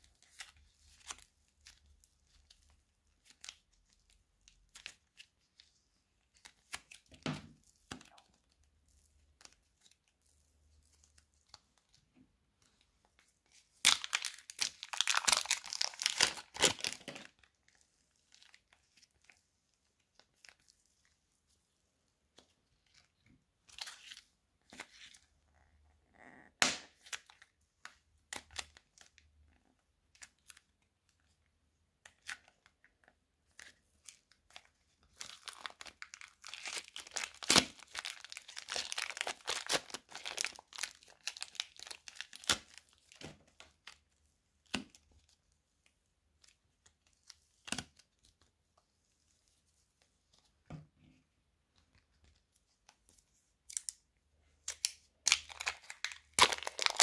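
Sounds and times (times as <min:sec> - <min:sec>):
clay crackling and tearing: 0:12.6 - 0:21.2, 0:33.5 - 0:48.8, 0:51.8 - 0:57.0.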